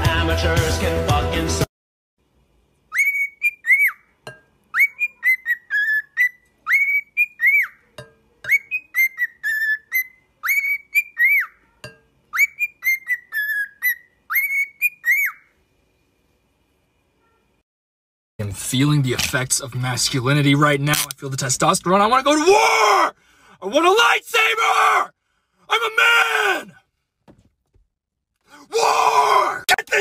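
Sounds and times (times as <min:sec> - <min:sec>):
cockatiel whistling a tune: 0:02.9 - 0:04.0, 0:04.7 - 0:07.8, 0:08.5 - 0:11.6, 0:12.3 - 0:15.5.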